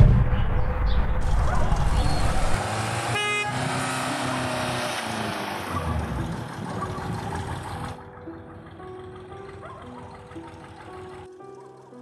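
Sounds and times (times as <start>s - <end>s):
car driving off: 1.3s - 11.9s
car horn toot: 3.1s - 4.0s.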